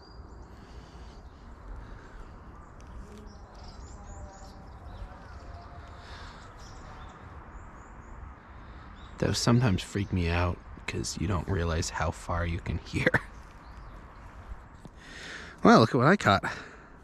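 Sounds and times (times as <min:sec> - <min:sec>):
small birds chirping: 0:00.0 - 0:17.0
distant loudspeaker announcement: 0:03.3 - 0:07.3.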